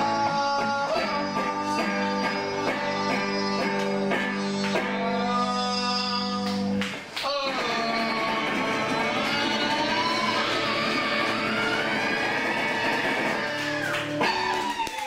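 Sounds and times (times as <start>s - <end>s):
electric guitar strumming chords: 0.0s - 6.9s, 7.5s - 14.6s.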